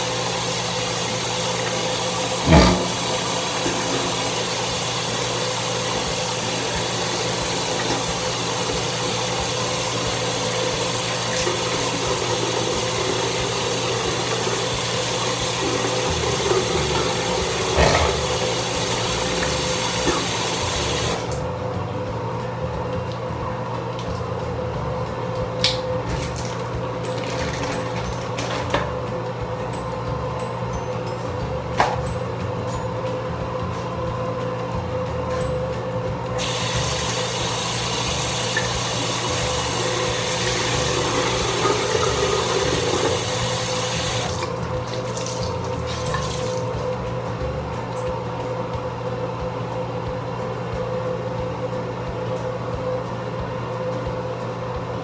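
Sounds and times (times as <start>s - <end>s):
tap running: 1.5s - 21.4s, 36.4s - 46.6s.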